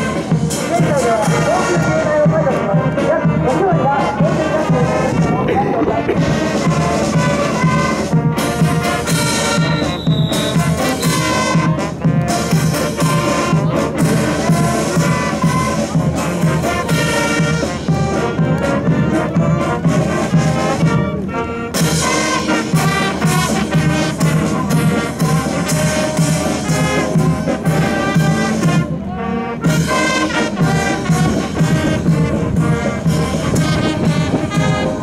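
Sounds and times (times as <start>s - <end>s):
steady drum beat: 0.0s - 21.0s, 21.8s - 28.9s
brass band playing a march: 0.0s - 35.0s.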